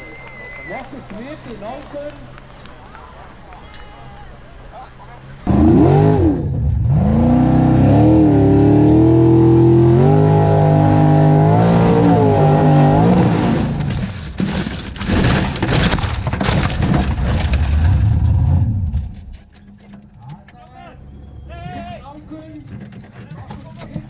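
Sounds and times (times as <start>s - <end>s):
buggy engine at full revs: 5.4s - 14.1s.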